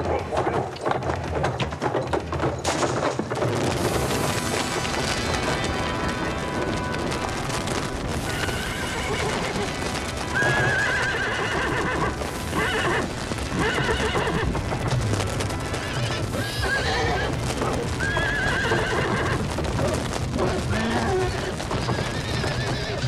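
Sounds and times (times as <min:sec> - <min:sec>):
hooves clattering: 0:00.0 - 0:23.0
horses neighing: 0:07.7 - 0:23.0.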